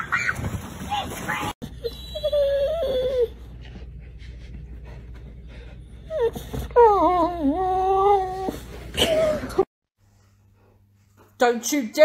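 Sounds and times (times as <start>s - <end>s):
dog whining: 1.6s - 3.6s, 6.0s - 9.6s.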